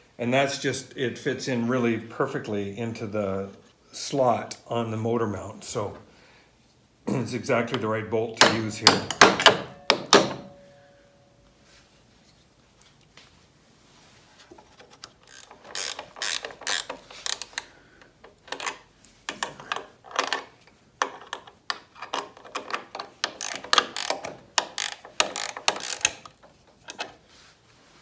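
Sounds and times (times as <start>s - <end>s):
ratchet wrench clicking: 15.3s - 17.7s, 23.2s - 27.0s.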